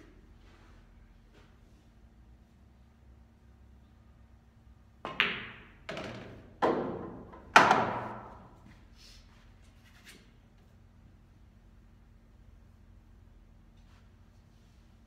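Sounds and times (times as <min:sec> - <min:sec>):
ball knocking through table: 0:05.0 - 0:08.1
cue tip tapping ball: 0:05.0 - 0:08.3
pool balls clacking: 0:05.0 - 0:08.4.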